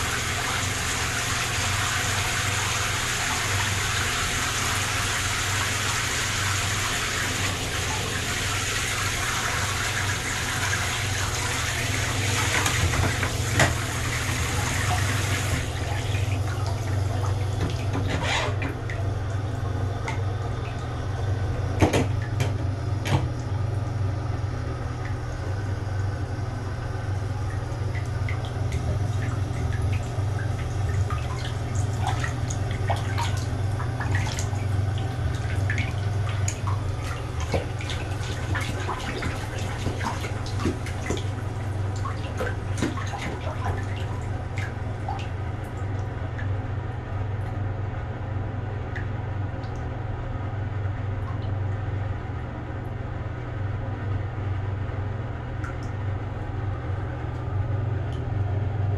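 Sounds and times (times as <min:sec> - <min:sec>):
tap water running into bathtub: 0:00.0 - 0:23.9, 0:27.1 - 0:47.6
water drips and splashes: 0:07.0 - 0:21.1, 0:21.8 - 0:23.7, 0:27.3 - 0:46.6, 0:55.6 - 0:56.0.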